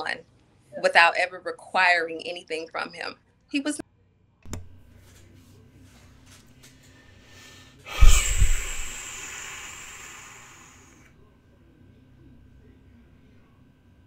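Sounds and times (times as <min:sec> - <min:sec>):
breathy exhale into microphone: 0:07.2 - 0:11.1.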